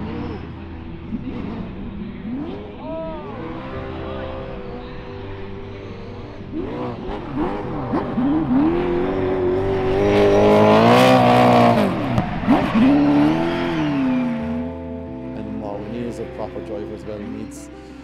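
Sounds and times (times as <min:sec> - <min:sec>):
car engine revving hard: 0:00.0 - 0:04.8, 0:05.8 - 0:14.9
rear tyres spinning: 0:00.0 - 0:15.6.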